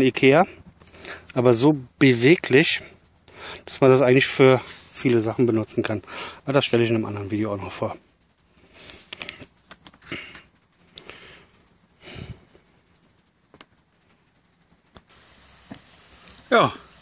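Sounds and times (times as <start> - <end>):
water boiling hiss: 0.0 - 17.0
person sniffing and breathing: 0.6 - 1.4, 2.8 - 3.7, 4.6 - 5.0, 6.0 - 6.5, 8.4 - 13.0.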